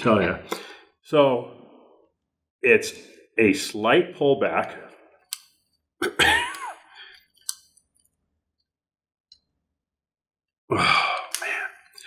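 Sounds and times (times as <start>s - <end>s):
man speaking: 0.0s - 1.6s, 2.6s - 5.0s
pistol metal clicks: 5.3s - 5.6s.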